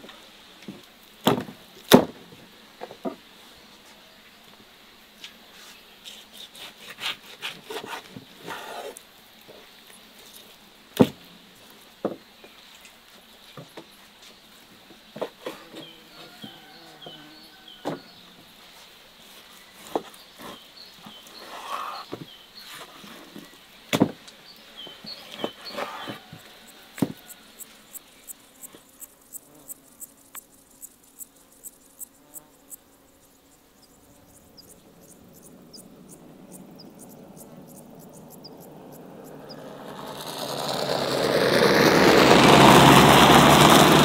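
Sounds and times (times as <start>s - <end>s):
crickets chirping: 7.7s - 41.6s.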